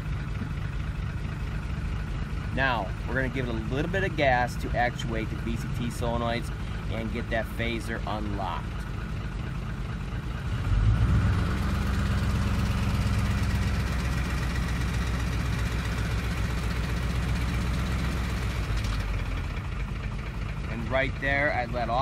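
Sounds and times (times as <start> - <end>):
engine rattling knock: 0.0 - 2.6
truck engine idling and revving: 0.0 - 22.0.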